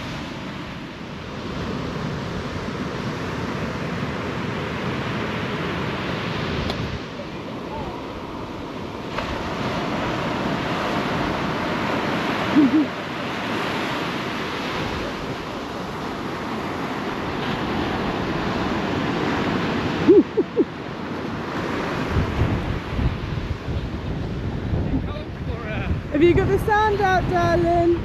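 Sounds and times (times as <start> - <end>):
surf washing up beach: 0.0 - 28.0.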